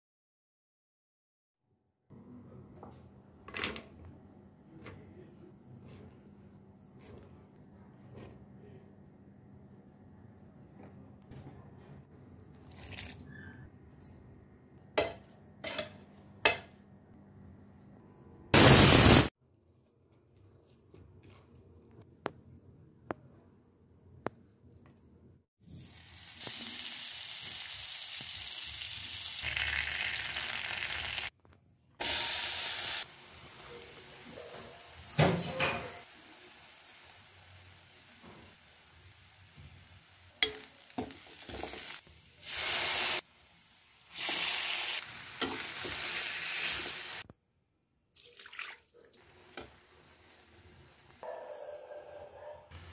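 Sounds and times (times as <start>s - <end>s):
butter and oil sizzling in pan: 25.7s - 31.3s, 32.0s - 35.2s, 36.0s - 47.2s.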